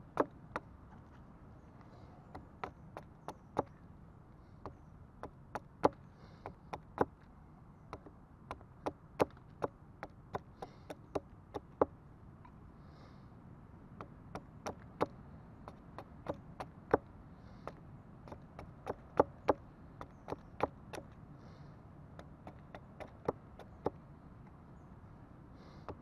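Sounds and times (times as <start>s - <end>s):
hatchet chopping a stick: 0.0s - 0.7s, 2.3s - 3.8s, 4.6s - 7.2s, 7.9s - 11.9s, 14.0s - 21.2s, 22.2s - 24.0s.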